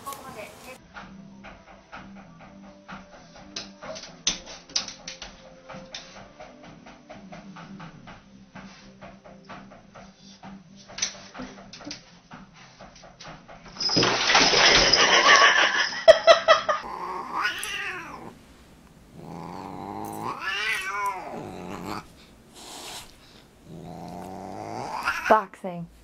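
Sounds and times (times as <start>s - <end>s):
cat yowling: 16.8s - 18.4s, 19.1s - 25.4s.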